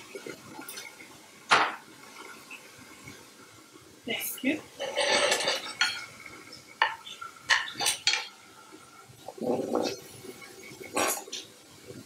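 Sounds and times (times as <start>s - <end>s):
wooden spoon scraping a skillet: 4.8s - 6.2s, 9.3s - 11.5s.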